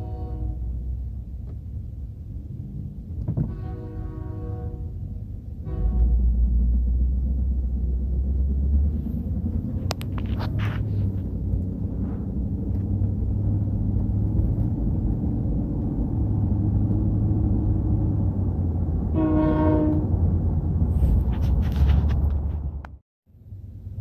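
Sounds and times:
locomotive horn blast: 0.0 - 1.0, 3.3 - 6.7, 19.0 - 20.3
low engine rumble: 0.0 - 24.0.

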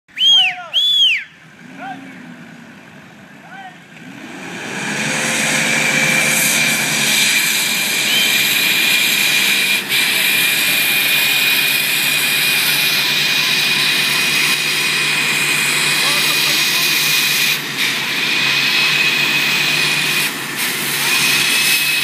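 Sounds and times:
diesel engines at high revs: 0.1 - 22.0
high whine: 4.8 - 22.0.

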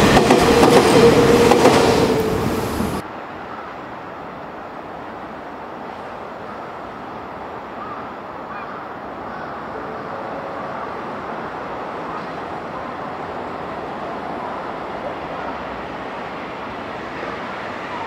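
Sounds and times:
train wheels rumbling on rail: 0.0 - 3.0
city noise: 0.0 - 18.0.

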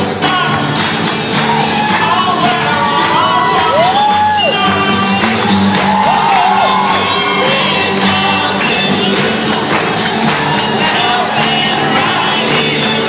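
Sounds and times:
crowd noise: 0.0 - 13.0
guitar: 0.0 - 13.0.

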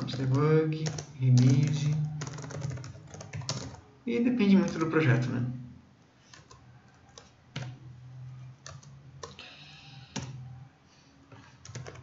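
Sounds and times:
keyboard keys clicking: 0.0 - 3.9, 4.5 - 5.0, 6.2 - 9.4, 10.0 - 10.6, 11.4 - 12.0.

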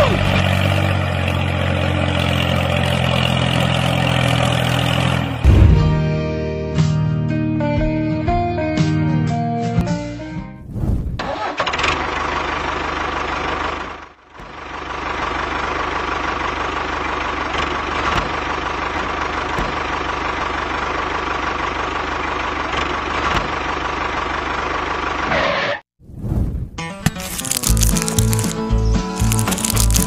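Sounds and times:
diesel tractor engine running: 0.0 - 6.4, 11.3 - 25.4, 27.1 - 30.0.

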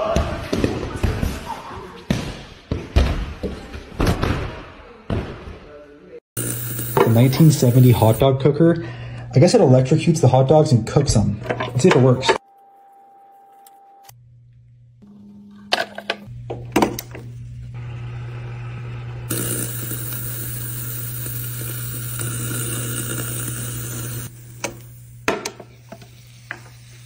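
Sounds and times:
sizzling hiss: 6.4 - 8.2, 19.3 - 27.0.

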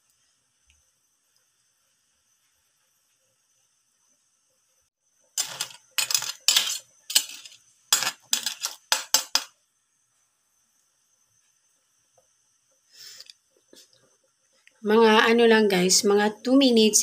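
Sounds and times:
metal utensil scraping a pot: 5.4 - 9.5.

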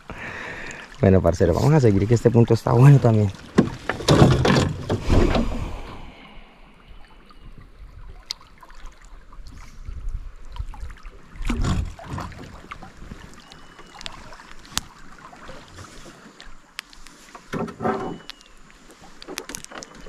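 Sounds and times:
water lapping at boat hull: 0.0 - 20.0
wind on microphone: 9.4 - 13.4.

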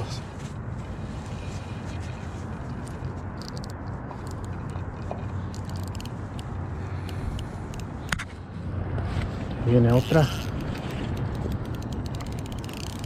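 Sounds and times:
low outdoor rumble: 0.0 - 13.0
fishing reel clicking: 3.4 - 4.8, 5.5 - 7.9, 9.9 - 13.0.

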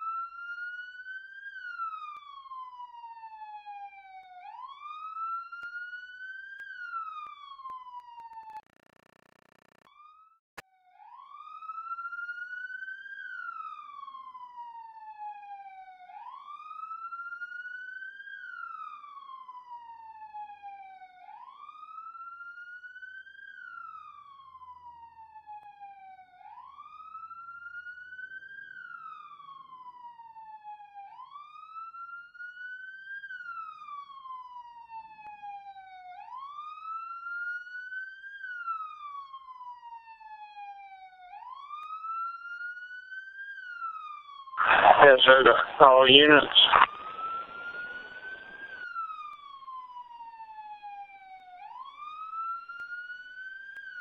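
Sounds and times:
siren wailing: 46.6 - 48.8.

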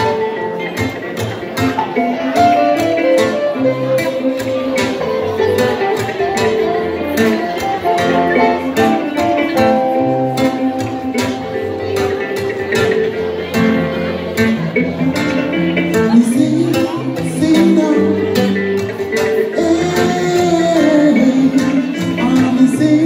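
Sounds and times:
plucked strings and guitars: 0.0 - 23.0
man singing: 15.9 - 23.0.

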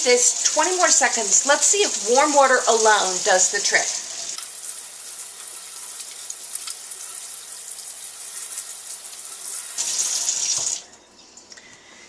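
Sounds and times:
faucet water splashing on hands: 4.4 - 10.8.

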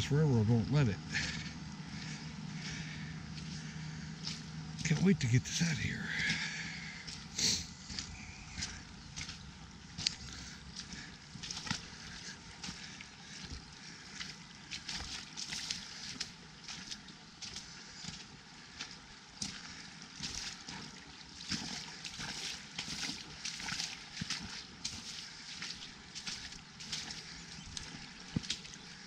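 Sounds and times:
footsteps splashing through mud: 1.0 - 29.0.

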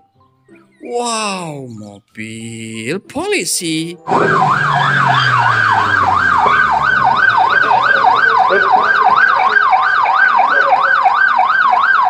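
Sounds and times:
police siren yelping: 4.0 - 12.0.

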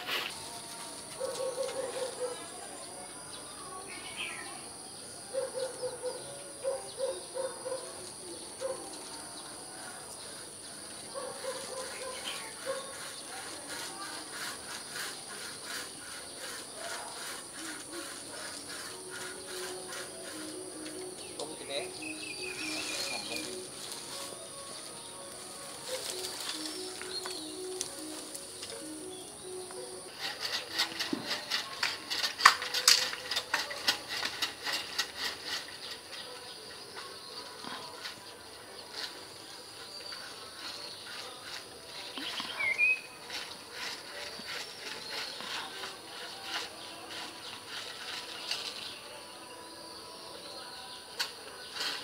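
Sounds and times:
insects chirping: 0.0 - 37.7
branches rustling and snapping: 22.0 - 37.1, 37.8 - 49.0.

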